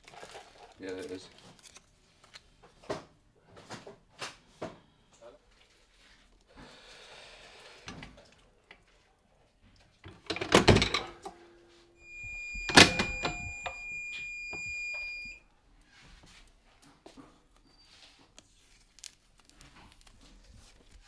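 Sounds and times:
heat press clunking shut: 0:10.1 - 0:11.3, 0:12.6 - 0:13.8
high electronic timer beep: 0:12.0 - 0:15.4
heat press release clunk: 0:12.6 - 0:13.8.

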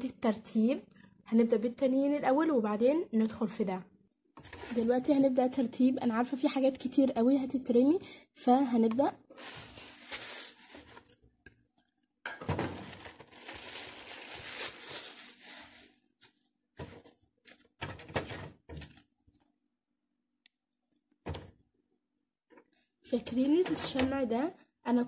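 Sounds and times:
plastic bag and papers rustling: 0:04.4 - 0:05.1, 0:09.3 - 0:11.2, 0:12.5 - 0:19.1
objects knocking and tapping: 0:11.4 - 0:13.3, 0:17.8 - 0:19.0.

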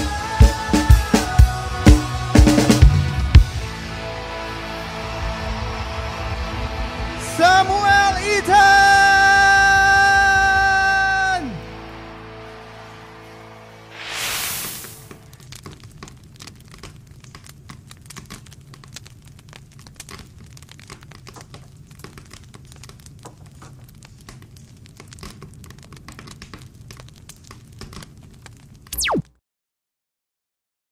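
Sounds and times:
falling pitch sweep: 0:13.9 - 0:15.0, 0:29.0 - 0:29.3
crackle of small clicks: 0:15.0 - 0:29.1.

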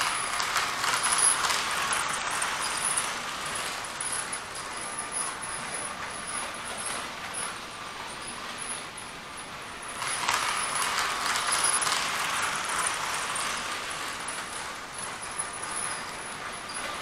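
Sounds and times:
model train rumbling on track: 0:00.0 - 0:17.0.

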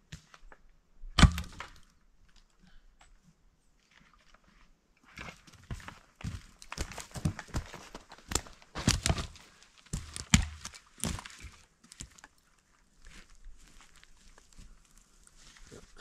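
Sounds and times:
footsteps crunching on forest floor: 0:03.8 - 0:16.0.

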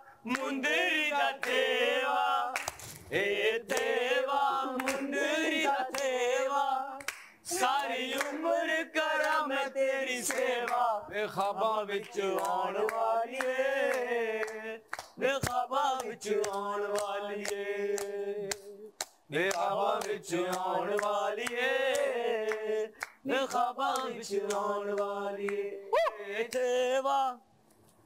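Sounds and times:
group singing without instruments: 0:00.0 - 0:27.5
hand claps: 0:00.3 - 0:00.6, 0:01.4 - 0:01.7, 0:02.5 - 0:03.1, 0:03.7 - 0:04.0, 0:04.7 - 0:05.1, 0:05.9 - 0:06.2, 0:07.0 - 0:08.4, 0:09.2 - 0:09.4, 0:10.2 - 0:10.8, 0:12.0 - 0:25.6.

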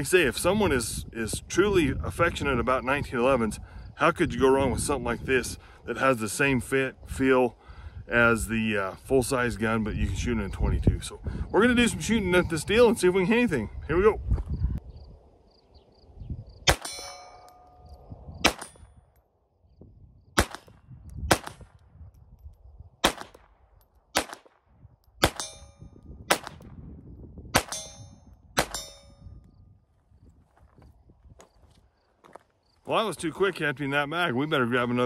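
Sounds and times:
low wind rumble: 0:00.0 - 0:32.8
pistol shots: 0:16.7 - 0:17.2, 0:18.4 - 0:18.8, 0:20.4 - 0:21.7, 0:23.0 - 0:24.6, 0:25.2 - 0:25.6, 0:26.3 - 0:26.7, 0:27.5 - 0:28.0, 0:28.6 - 0:28.9
steel target clanging: 0:16.7 - 0:18.8, 0:25.2 - 0:25.9, 0:27.6 - 0:29.2.

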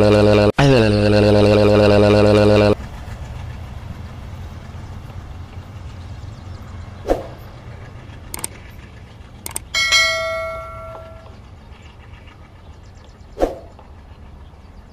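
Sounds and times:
steady low rumble: 0:01.8 - 0:14.9
short mouse clicks: 0:08.3 - 0:08.6, 0:09.5 - 0:09.7
notification bell ding: 0:09.8 - 0:11.3.

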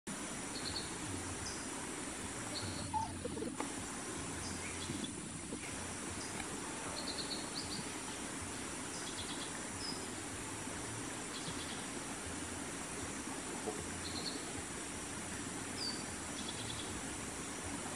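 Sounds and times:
insect drone: 0:00.2 - 0:17.9
bird chirps: 0:00.5 - 0:01.6, 0:02.5 - 0:03.5, 0:06.9 - 0:07.9, 0:08.9 - 0:10.0.

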